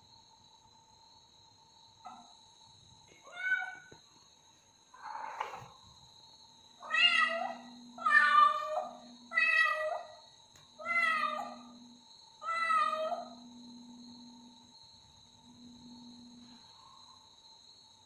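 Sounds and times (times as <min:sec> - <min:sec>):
cat meowing: 0:03.2 - 0:03.9, 0:06.8 - 0:10.1, 0:10.8 - 0:11.7.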